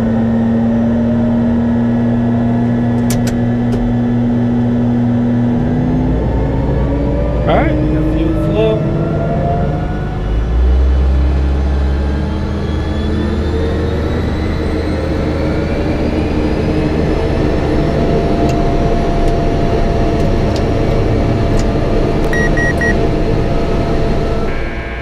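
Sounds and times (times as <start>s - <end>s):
turboprop engine whine rising: 0.0s - 25.0s
low rumble: 2.1s - 24.8s
short beeps: 22.3s - 23.0s.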